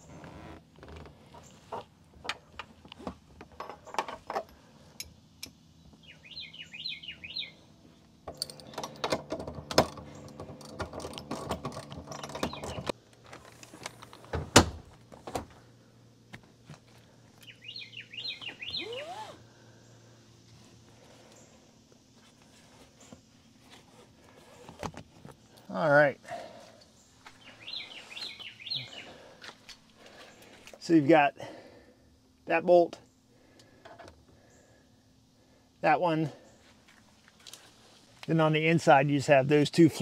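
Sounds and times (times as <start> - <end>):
metal hardware clicks and knocks: 3.4 - 5.6, 8.3 - 13.0
bird chirping: 5.8 - 9.0, 12.0 - 13.0, 17.4 - 20.0, 26.9 - 29.4.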